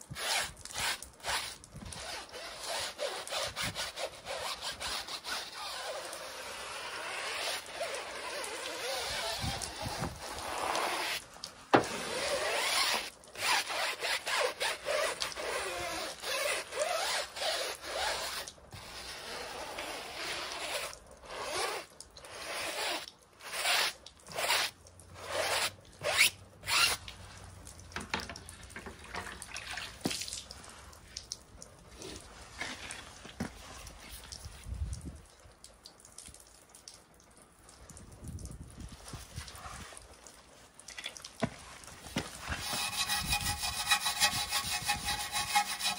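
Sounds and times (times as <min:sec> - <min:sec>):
brush scrubbing rubber tyre: 0:00.0 - 0:27.2, 0:41.4 - 0:45.9.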